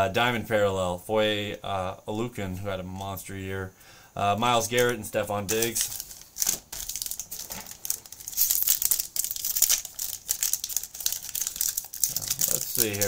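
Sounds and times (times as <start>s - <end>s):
card pack wrapper crinkling: 4.7s - 13.0s.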